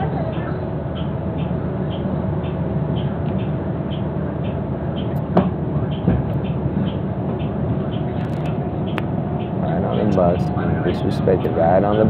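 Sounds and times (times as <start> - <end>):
bus engine humming: 0.0 - 12.0.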